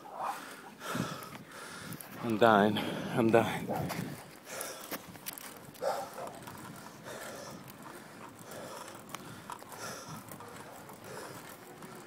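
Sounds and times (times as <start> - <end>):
heavy breathing: 0.0 - 3.8, 4.4 - 5.1, 6.1 - 12.0
bicycle clicks and rattles: 0.4 - 12.0.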